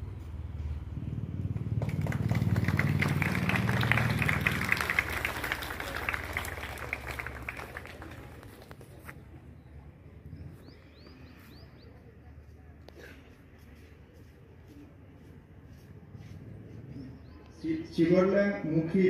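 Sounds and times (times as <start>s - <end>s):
audience applause: 1.7s - 8.9s.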